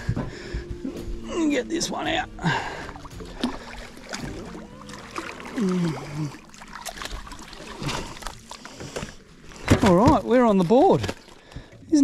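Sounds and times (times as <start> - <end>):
fish thrashing and splashing: 2.4 - 11.8.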